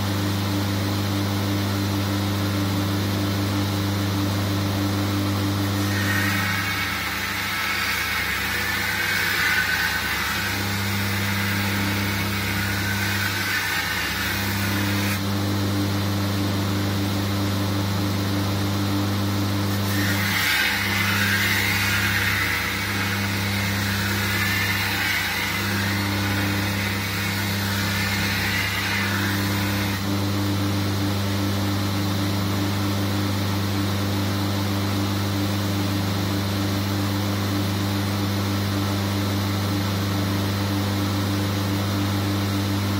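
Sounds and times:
belt grinder motor humming: 5.4 - 15.2, 19.7 - 30.1
steel rasping on grinding belt: 5.6 - 15.2, 19.7 - 30.1.

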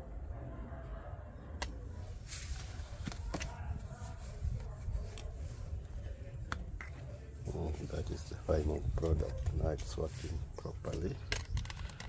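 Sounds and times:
plastic clicks and knocks: 10.9 - 12.0.

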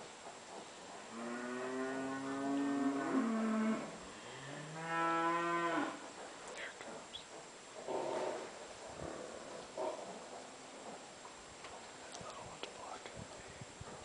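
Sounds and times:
cattle mooing: 1.1 - 6.0.

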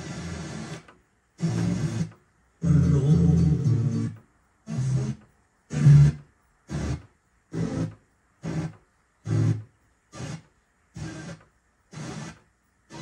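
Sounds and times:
fm radio snatches: 0.0 - 4.1.

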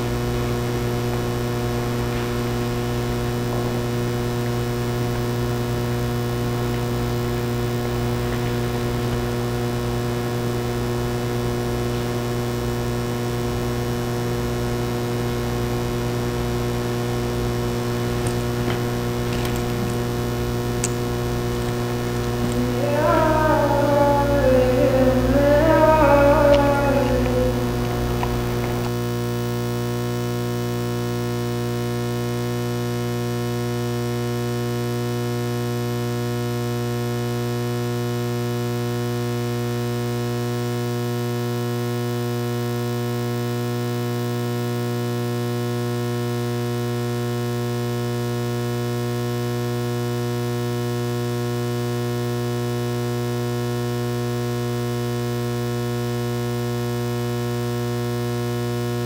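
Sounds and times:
electrical mains hum: 0.0 - 59.0
music: 22.5 - 28.8.

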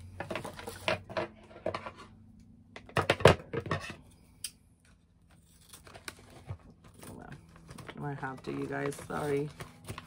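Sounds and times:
plastic pouch rustling: 5.6 - 10.0.

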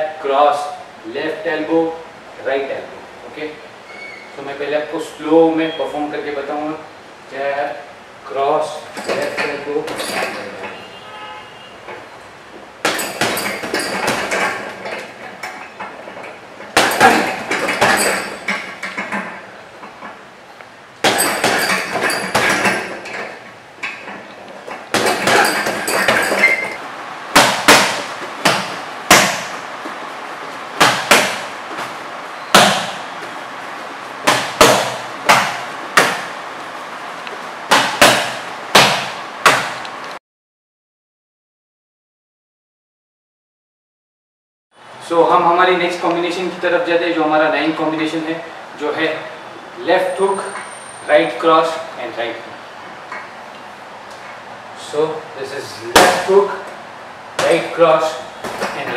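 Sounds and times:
punches on heavy bag: 12.8 - 14.8, 16.8 - 18.8, 21.0 - 23.0, 24.9 - 26.7, 27.4 - 29.7, 30.8 - 33.1, 34.3 - 36.4, 37.7 - 39.8, 55.9 - 56.4.

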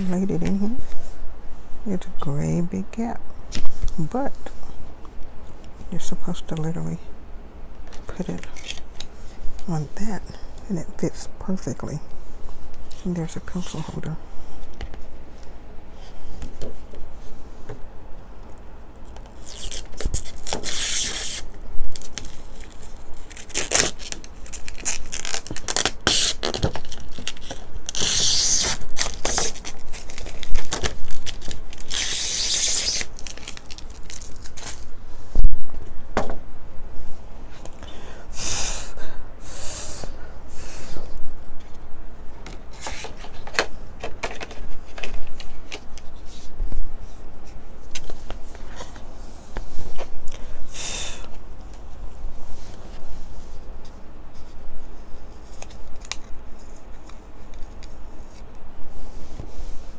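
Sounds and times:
plastic film peeling and crinkling: 19.0 - 34.9.

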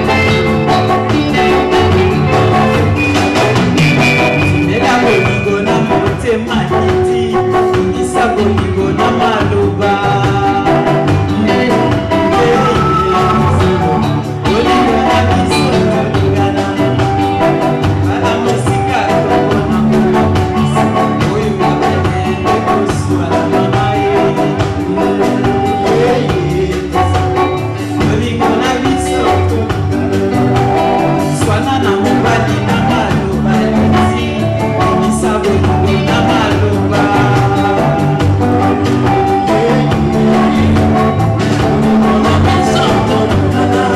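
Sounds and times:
bass guitar: 0.0 - 43.9
drum kit: 0.0 - 43.9
electric guitars: 0.0 - 43.9
woman singing: 8.0 - 17.4.

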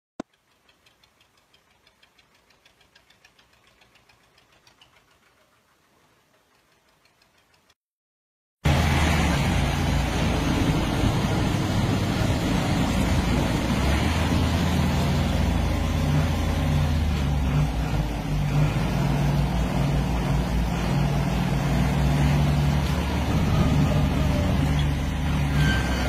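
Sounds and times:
faint regular ticking: 0.2 - 7.8
tractor diesel engines under load: 0.2 - 7.8, 8.6 - 26.0.

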